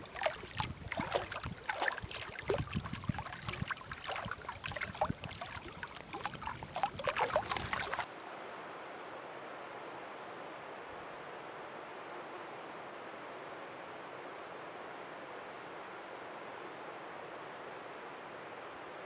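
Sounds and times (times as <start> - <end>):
small waves lapping against rocks: 0.0 - 8.1.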